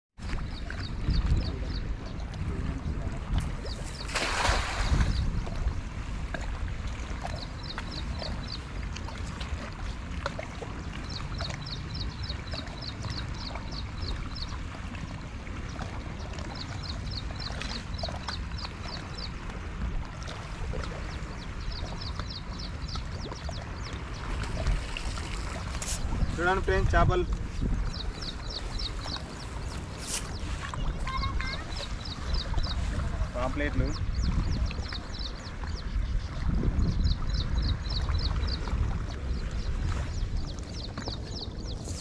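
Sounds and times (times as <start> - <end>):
net splashing on water: 4.0 - 5.1
bird chirping quickly: 27.8 - 38.6.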